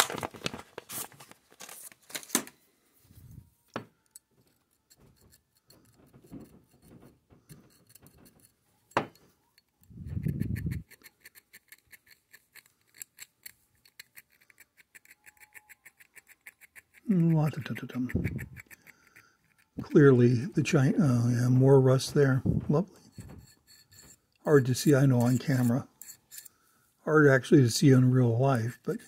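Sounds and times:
file scraping on steel shaft: 4.6 - 8.6, 22.9 - 26.6, 27.8 - 29.0
handling noises: 21.1 - 26.5.

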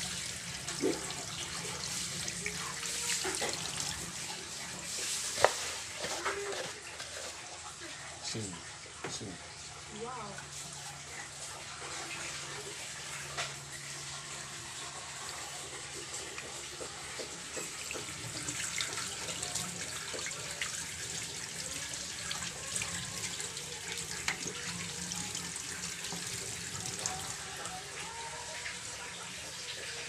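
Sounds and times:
tap water running into sink: 0.0 - 7.7, 10.2 - 30.0
water splashing and dripping: 15.9 - 28.0.

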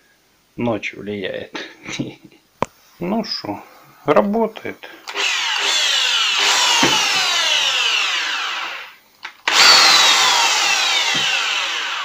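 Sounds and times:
electric drill motor whining: 5.1 - 12.0.

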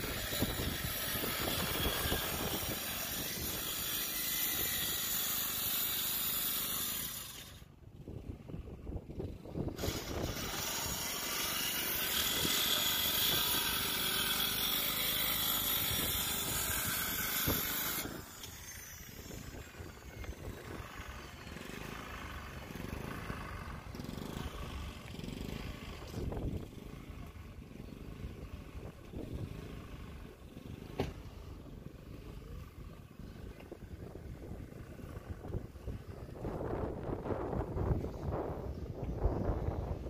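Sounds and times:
wind buffeting microphone: 0.0 - 21.2, 31.8 - 40.0.

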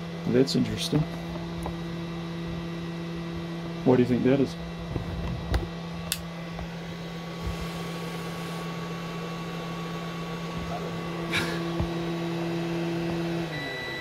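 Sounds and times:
charger cooling fans humming: 0.0 - 14.0.

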